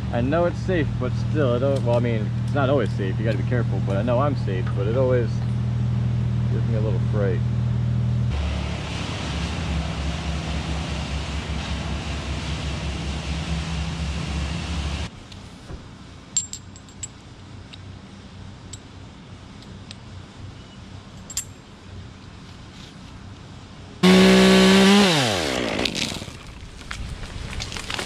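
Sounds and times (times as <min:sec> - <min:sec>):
carabiner clinking on rope: 0:16.3 - 0:17.8, 0:21.1 - 0:21.7.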